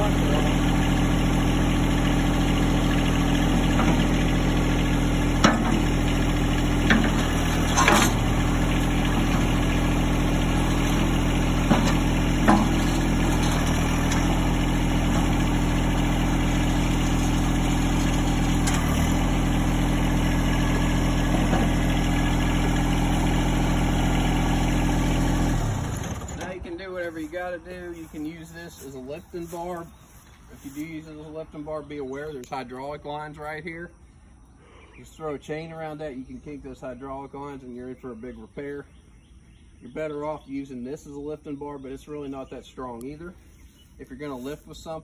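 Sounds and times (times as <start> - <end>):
tractor engine idling: 0.0 - 33.6
metal clanks: 5.4 - 6.0, 6.8 - 9.8, 10.7 - 14.4.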